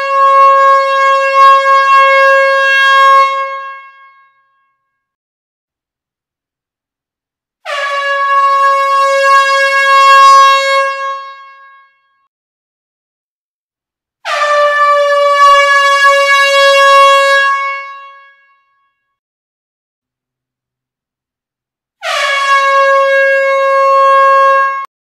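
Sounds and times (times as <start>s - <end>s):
air horn blasts: 0.0s - 4.3s, 7.6s - 12.1s, 14.2s - 18.6s, 22.0s - 24.9s.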